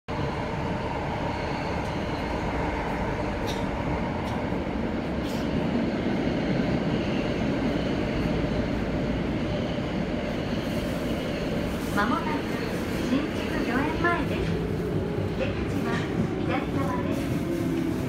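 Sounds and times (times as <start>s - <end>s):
subway train rumbling: 0.1s - 18.0s.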